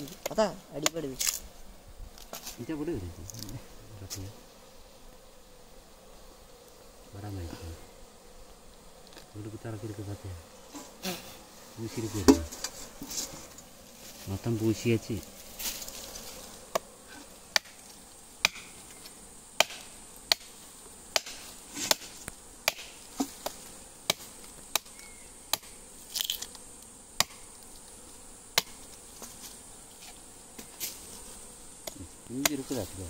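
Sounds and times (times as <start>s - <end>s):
insect buzz: 0.0s - 33.0s
machete chopping into tree trunk: 16.7s - 16.9s, 17.5s - 17.8s, 18.4s - 18.8s, 19.6s - 20.5s, 21.1s - 26.5s, 27.2s - 27.5s, 28.5s - 29.4s, 31.8s - 32.7s.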